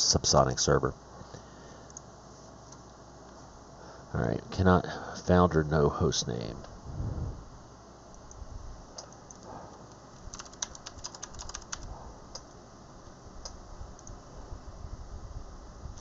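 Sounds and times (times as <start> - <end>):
typing on computer keyboard: 10.2 - 11.9.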